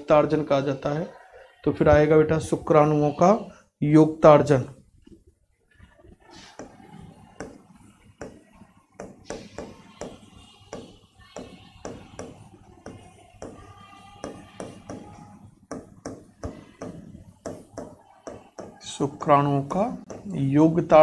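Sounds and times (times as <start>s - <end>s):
marker writing on a whiteboard: 4.6s - 21.0s.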